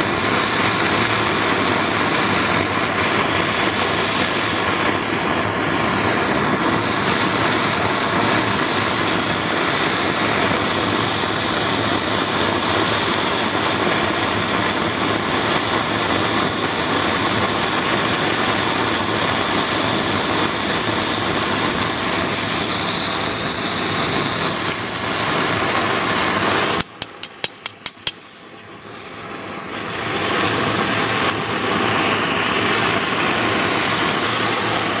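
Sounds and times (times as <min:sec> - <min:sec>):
torch flame hissing: 0:00.0 - 0:35.0
igniter clicks: 0:26.8 - 0:28.7.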